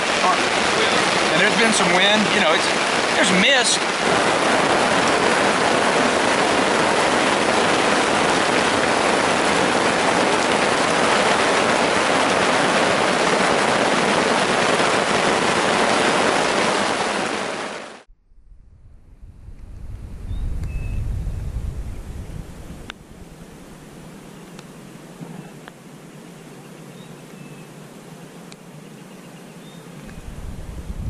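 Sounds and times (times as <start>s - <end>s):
heavy rain on tarp: 0.0s - 18.1s.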